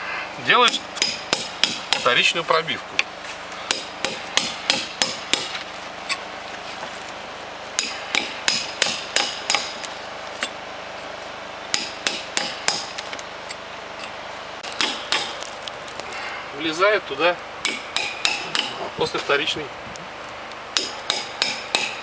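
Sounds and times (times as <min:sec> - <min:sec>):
hammer tapping caulking iron: 0:17.6 - 0:18.8.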